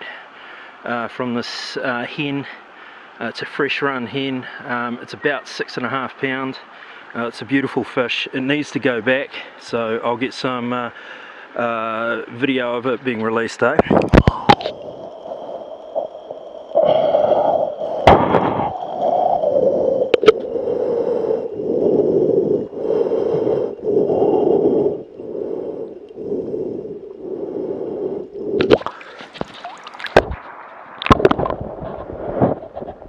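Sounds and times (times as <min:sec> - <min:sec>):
water splashing and gurgling: 0:13.9 - 0:20.8, 0:28.5 - 0:33.0
heavy rasping mouth breathing: 0:13.9 - 0:30.2.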